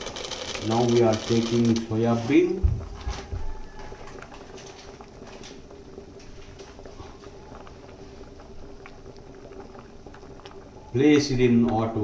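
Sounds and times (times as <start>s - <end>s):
water simmering in a pot: 0.0s - 12.0s.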